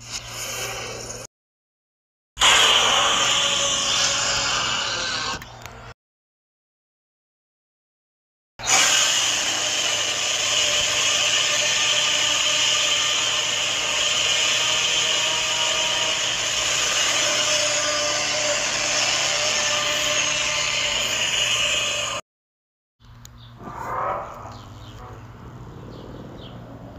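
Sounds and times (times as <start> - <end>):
harsh monster rasping: 2.4 - 5.4.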